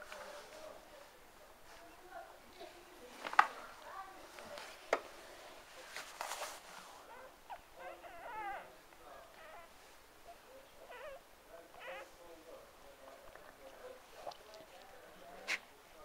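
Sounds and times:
clicks and rustles: 3.1s - 5.1s
puppies whimpering and squeaking: 7.1s - 8.7s, 9.3s - 9.7s, 10.8s - 11.2s, 11.8s - 12.1s.

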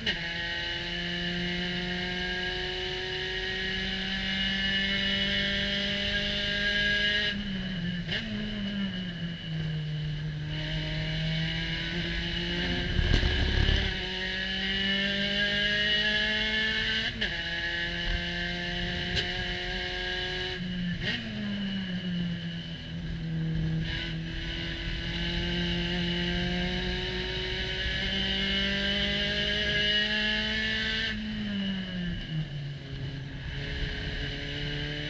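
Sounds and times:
race car engine: 0.0s - 35.0s
loud rumble: 12.4s - 14.1s.

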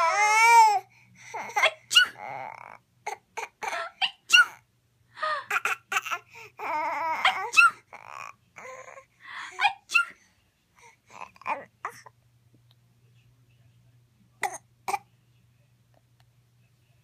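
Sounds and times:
baby babbling: 0.0s - 4.6s, 5.5s - 10.1s, 11.1s - 12.1s.

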